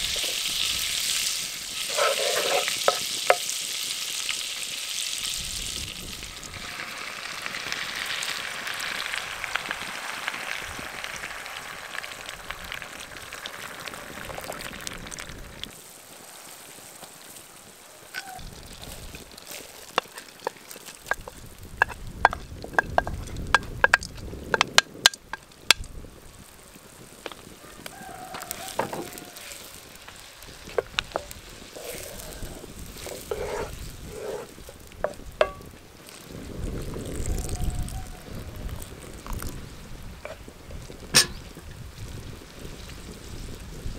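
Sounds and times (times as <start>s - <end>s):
hot liquid sizzling: 0.0s - 43.9s
wooden spoon scraping a plate: 1.9s - 3.4s, 19.5s - 24.0s, 30.6s - 35.6s
spoon clicking and tapping: 21.0s - 25.8s.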